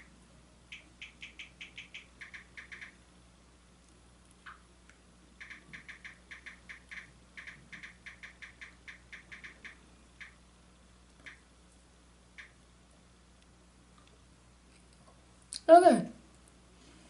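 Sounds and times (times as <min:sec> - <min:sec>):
light tapping: 0:04.4 - 0:10.4.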